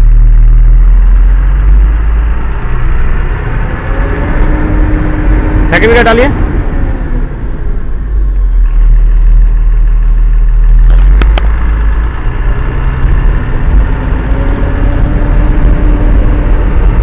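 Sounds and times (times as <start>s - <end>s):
truck diesel engine rumble: 0.0s - 17.0s.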